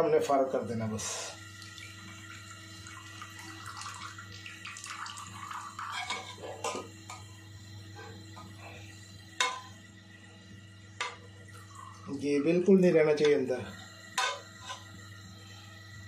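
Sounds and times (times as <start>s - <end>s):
liquid trickling into bowl: 1.5s - 6.1s.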